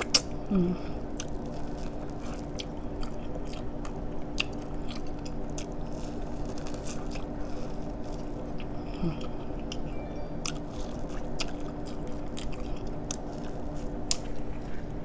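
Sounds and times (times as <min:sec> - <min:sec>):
person chewing corn: 0:00.0 - 0:15.0
steady low hum: 0:00.0 - 0:15.0.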